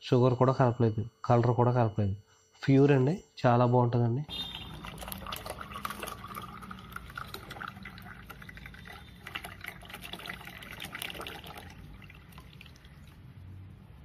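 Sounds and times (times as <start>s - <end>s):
juice pouring and splashing: 4.3s - 13.5s.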